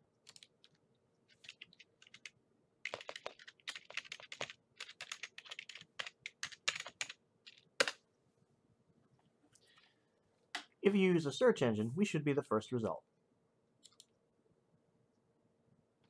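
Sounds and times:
computer keyboard typing: 0.2 - 8.0, 13.8 - 14.1.

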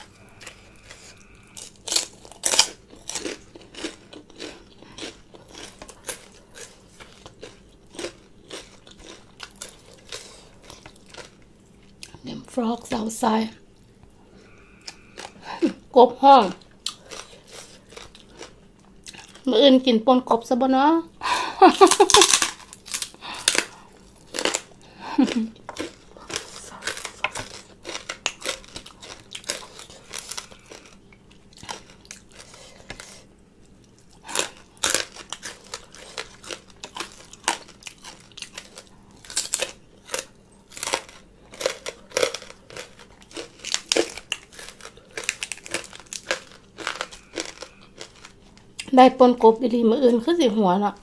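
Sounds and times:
pork rinds crunching: 0.0 - 12.2, 16.4 - 19.5, 21.8 - 48.9
lettuce leaf crinkling: 21.8 - 23.6.

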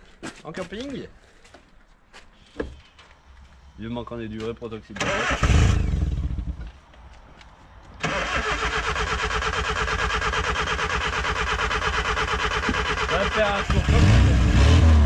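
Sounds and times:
starter cranking car engine: 5.0 - 6.6, 8.0 - 15.0.

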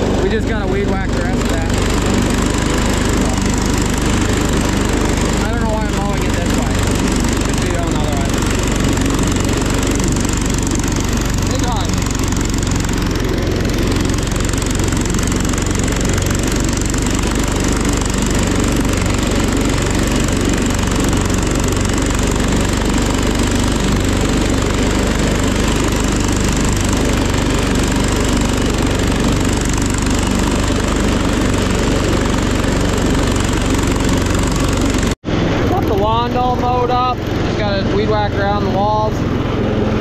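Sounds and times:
lawn tractor engine mowing: 0.0 - 40.0.

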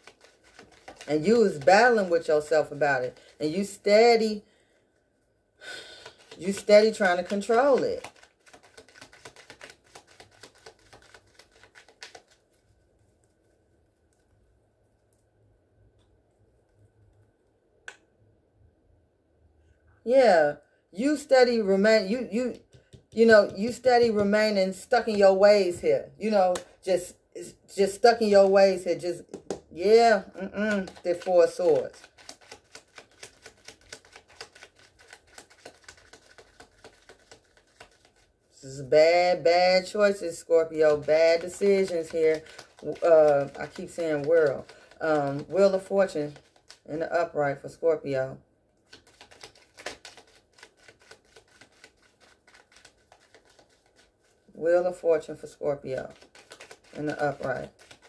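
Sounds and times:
cards being shuffled: 0.0 - 3.8, 6.0 - 12.8, 22.1 - 25.4, 28.7 - 38.3, 39.8 - 46.9, 48.9 - 55.0, 55.9 - 58.0
cards clicking as handled: 32.0 - 37.9, 48.9 - 54.0, 56.1 - 58.0.

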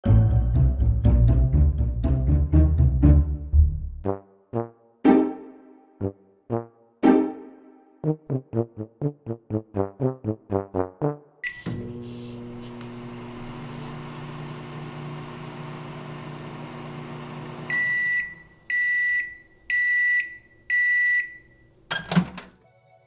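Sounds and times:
microwave beeps: 11.4 - 11.9, 17.6 - 21.7
microwave oven humming: 11.6 - 18.7.

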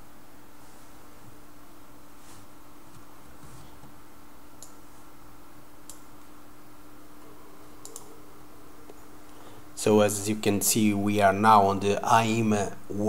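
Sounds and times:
background hiss: 0.0 - 13.0
low hum: 0.0 - 13.0
computer mouse clicks: 4.6 - 4.8, 5.8 - 6.0, 7.8 - 8.1.

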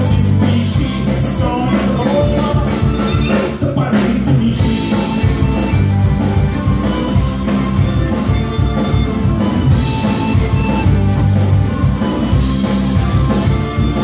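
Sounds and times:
accordion: 0.0 - 14.0
acoustic guitar: 0.0 - 14.0
bass guitar: 0.0 - 14.0
drum kit beat: 0.0 - 14.0
folk whistle: 2.3 - 3.6, 4.6 - 14.0
violin: 4.6 - 14.0.

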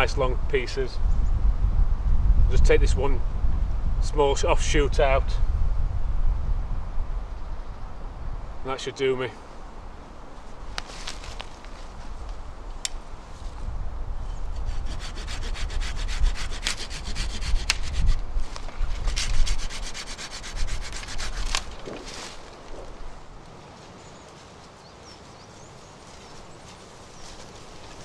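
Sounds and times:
hand saw cutting wood: 14.6 - 18.2, 18.9 - 22.1
wood snapping: 21.3 - 22.8.

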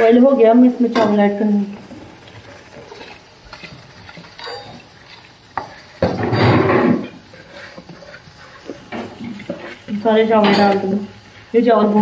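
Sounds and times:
pot and utensils clinking: 2.7 - 11.0.

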